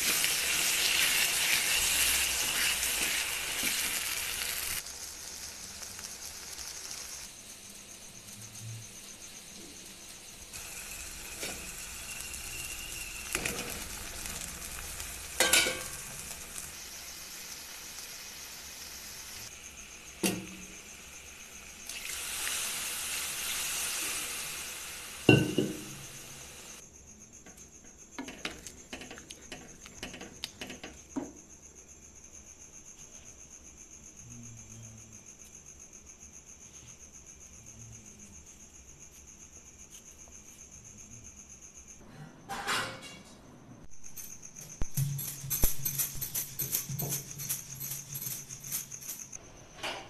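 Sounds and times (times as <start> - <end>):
gravy sizzling in a pan: 0.0 - 26.8.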